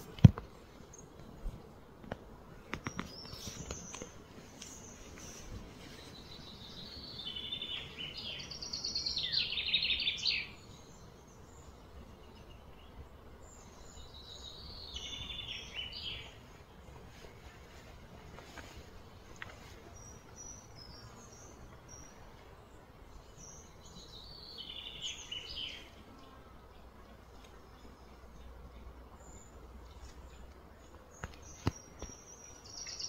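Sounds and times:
low outdoor background: 0:00.0 - 0:33.0
songbird trilling: 0:06.5 - 0:10.6.

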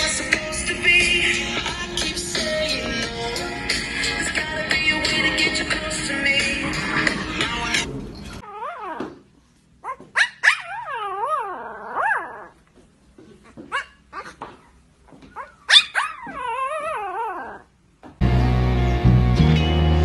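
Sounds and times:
loud music: 0:00.0 - 0:07.9, 0:18.2 - 0:20.0
puppy howling: 0:08.4 - 0:09.1, 0:09.8 - 0:12.6, 0:15.4 - 0:17.7
puppy yips: 0:08.4 - 0:09.1, 0:09.8 - 0:12.5, 0:15.3 - 0:17.6.

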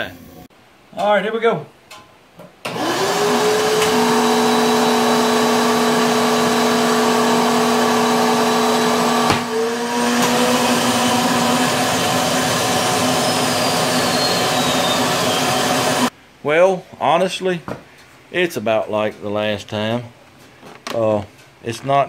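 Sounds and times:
suction motor running: 0:02.7 - 0:16.1.

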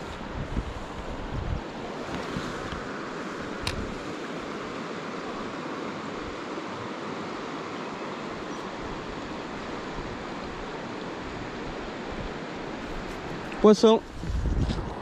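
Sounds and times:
river flowing over gravel: 0:00.0 - 0:15.0.

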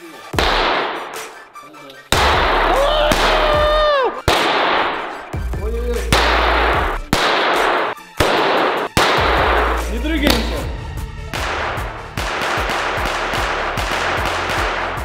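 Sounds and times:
firecrackers bursting: 0:00.4 - 0:01.5, 0:02.1 - 0:10.7, 0:11.3 - 0:15.0.

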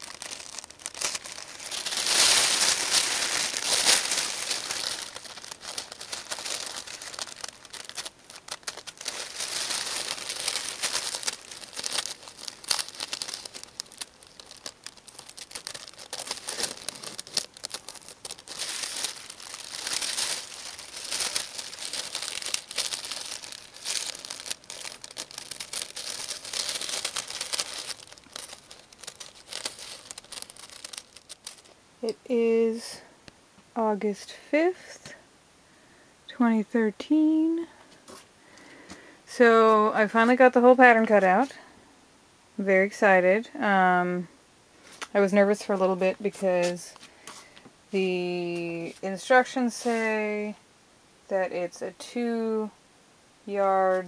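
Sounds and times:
tissue paper rustling and crinkling: 0:00.0 - 0:31.8, 0:44.9 - 0:47.4, 0:48.2 - 0:50.4.

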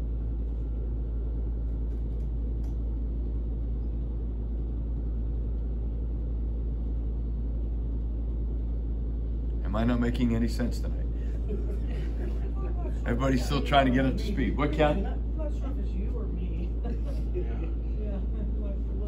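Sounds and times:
faint hum: 0:00.0 - 0:19.0
low room rumble: 0:00.0 - 0:19.0.

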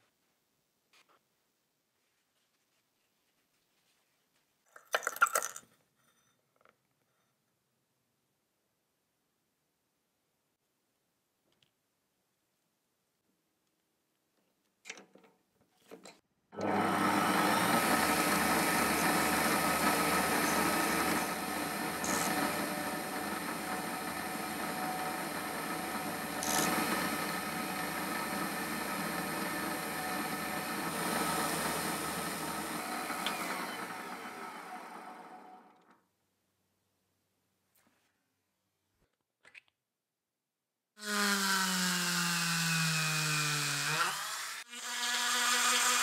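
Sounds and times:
electric power tool whining: 0:16.6 - 0:35.9, 0:41.0 - 0:46.0.

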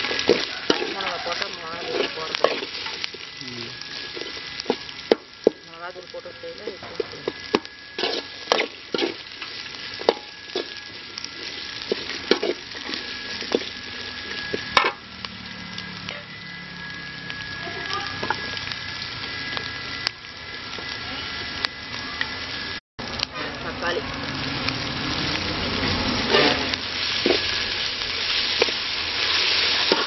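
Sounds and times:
onions sizzling in oil: 0:00.0 - 0:30.0
spatula scraping metal pan: 0:07.0 - 0:15.0, 0:26.2 - 0:30.0.

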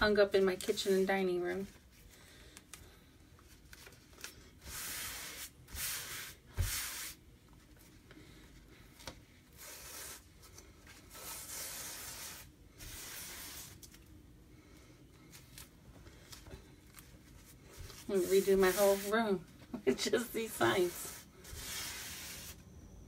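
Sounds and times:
swishing on a towel: 0:17.4 - 0:19.3.

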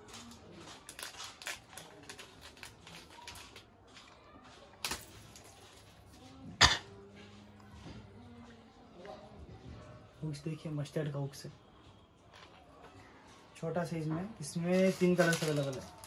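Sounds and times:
plastic packaging crinkling: 0:00.0 - 0:04.1, 0:14.4 - 0:16.0.

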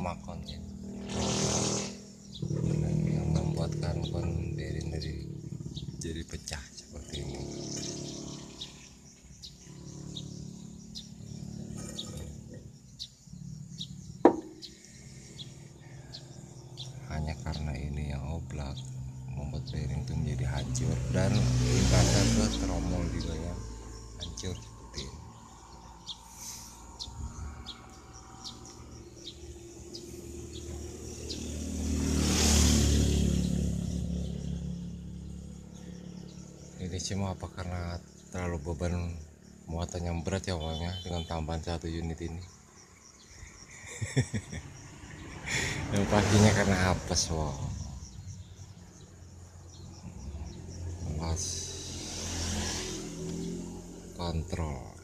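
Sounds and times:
bird chirping: 0:00.0 - 0:55.0
vehicle driving past: 0:00.5 - 0:06.0, 0:07.0 - 0:17.8, 0:20.0 - 0:36.8, 0:44.6 - 0:54.5.

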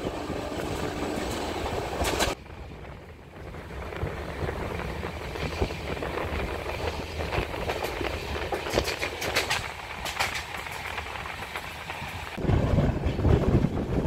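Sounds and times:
train wheels rumbling: 0:00.0 - 0:14.0
sharp track clicks: 0:05.4 - 0:12.4.

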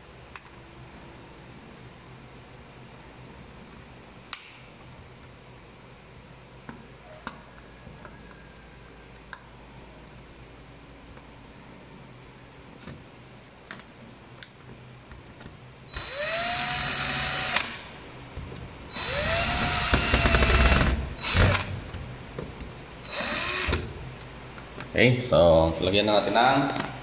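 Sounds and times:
cordless drill whining: 0:15.9 - 0:17.8, 0:18.9 - 0:21.8, 0:23.1 - 0:23.9.

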